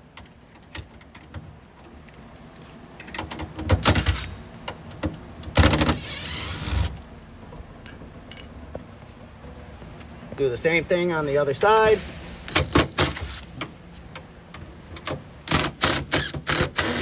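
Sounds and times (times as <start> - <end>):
impact driver running: 15.5 - 17.0.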